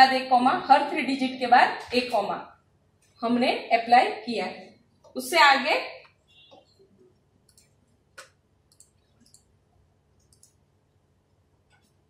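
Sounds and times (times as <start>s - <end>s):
faint clicks: 7.4s - 9.5s, 10.2s - 10.6s.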